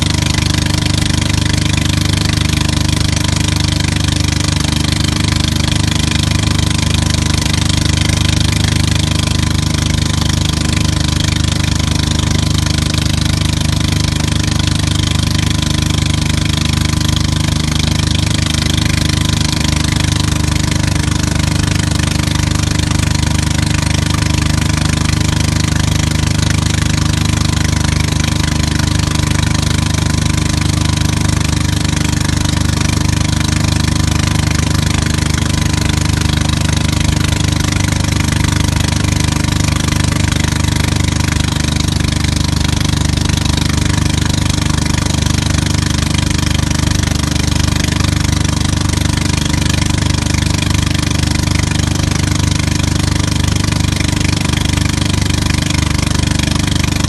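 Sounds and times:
motorboat engine running: 0:00.0 - 0:57.0.

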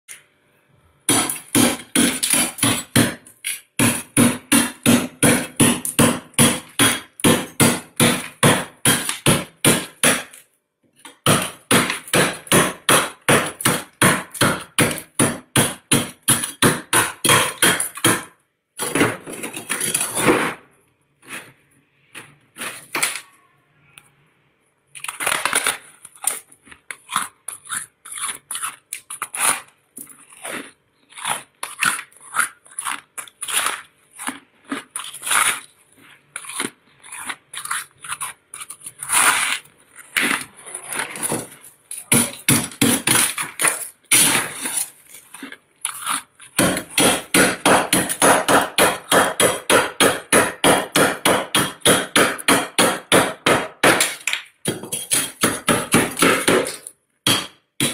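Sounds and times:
freezer frost being scraped: 0:19.3 - 0:23.2, 0:25.2 - 0:46.9.

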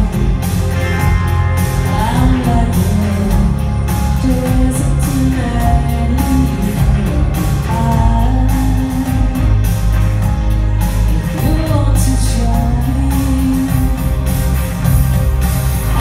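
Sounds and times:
live rock band playing: 0:00.0 - 0:16.0
woman singing: 0:01.7 - 0:09.8, 0:11.0 - 0:14.4.

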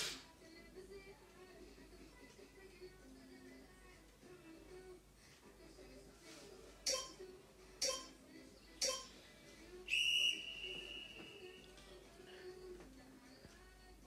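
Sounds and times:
electronic timer pips: 0:06.9 - 0:07.2, 0:07.8 - 0:08.1, 0:08.8 - 0:09.1.

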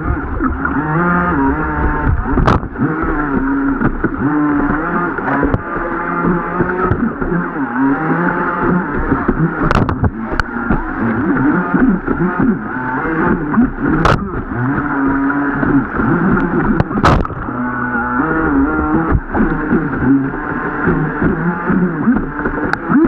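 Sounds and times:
boat motor whining: 0:00.0 - 0:23.0
sharp knocks: 0:16.8 - 0:17.4.

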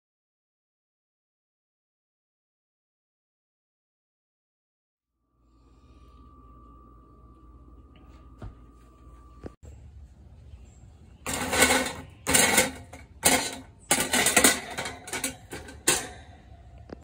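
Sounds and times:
metal grill grate rattling and scraping: 0:11.2 - 0:16.6.

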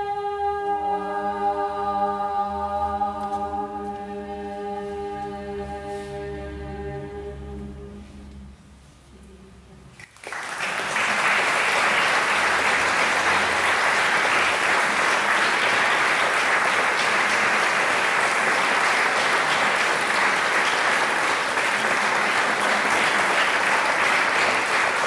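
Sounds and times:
audience applauding: 0:10.0 - 0:25.0.

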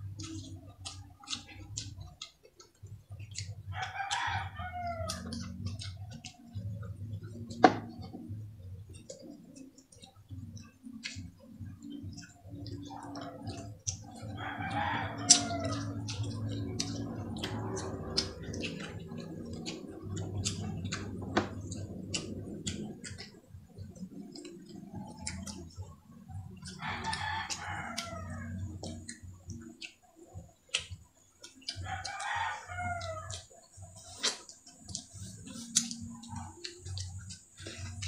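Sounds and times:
people chewing and eating: 0:00.0 - 0:38.0
rooster crowing: 0:03.7 - 0:05.3, 0:14.3 - 0:16.0, 0:26.8 - 0:29.0, 0:31.8 - 0:33.5.

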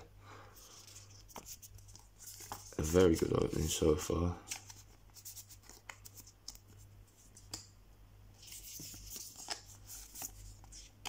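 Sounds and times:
cards sliding rustle: 0:00.6 - 0:07.7, 0:08.4 - 0:11.0
cards clicking and tapping: 0:05.5 - 0:06.6, 0:07.4 - 0:07.7.

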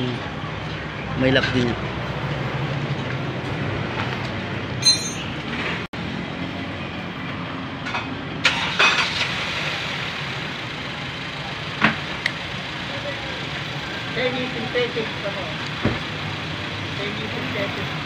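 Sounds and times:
hand tools clicking and clinking: 0:04.8 - 0:05.3.

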